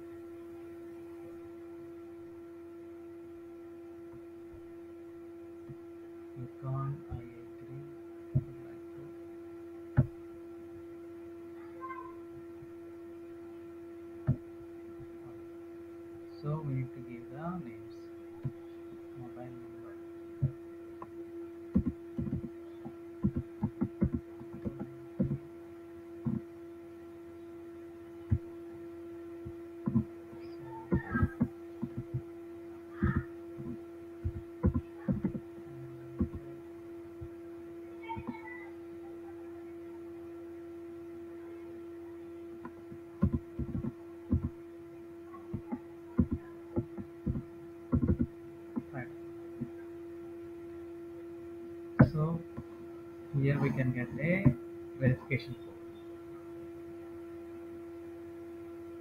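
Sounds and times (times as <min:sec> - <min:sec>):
steady hum: 0:00.0 - 0:59.0
keyboard keys tapping: 0:21.7 - 0:25.5, 0:29.4 - 0:32.3, 0:33.0 - 0:35.5, 0:36.2 - 0:36.5, 0:42.6 - 0:44.6, 0:45.4 - 0:48.9.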